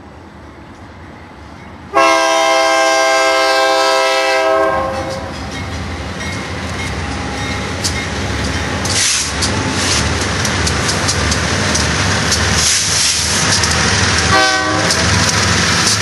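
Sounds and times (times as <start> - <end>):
diesel locomotive engine rumble: 0.0 - 16.0
train horn: 1.9 - 5.4, 14.3 - 15.1
wheels clicking on rails: 5.0 - 16.0
wheel and rail hiss: 5.1 - 16.0.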